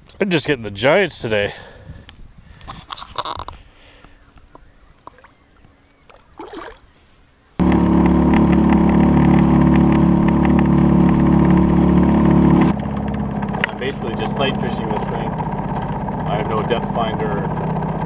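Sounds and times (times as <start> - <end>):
faint water and handling sounds: 2.6 - 7.6
outboard motor running: 5.0 - 7.0, 7.6 - 18.0.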